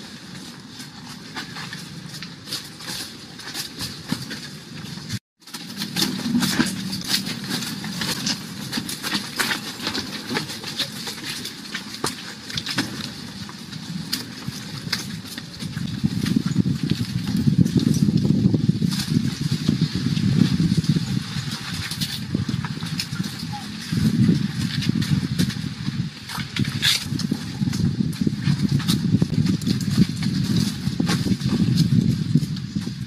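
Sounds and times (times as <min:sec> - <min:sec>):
scattered clicks and crackles: 0:00.0 - 0:33.0
steady low rumble: 0:12.4 - 0:33.0.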